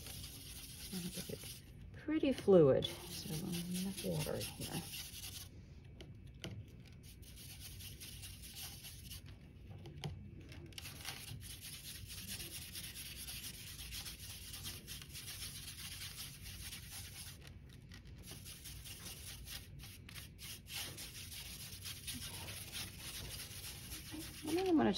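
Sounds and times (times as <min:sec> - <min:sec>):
paintbrush rubbing on palette: 0:00.0 - 0:05.5, 0:06.9 - 0:09.5, 0:10.8 - 0:24.9.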